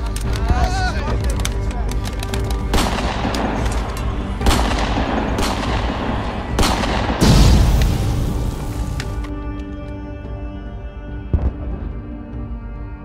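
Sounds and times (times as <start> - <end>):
background music: 0.0 - 13.0
gunshots with ringing tail: 2.7 - 8.9
deep boom: 4.4 - 9.0.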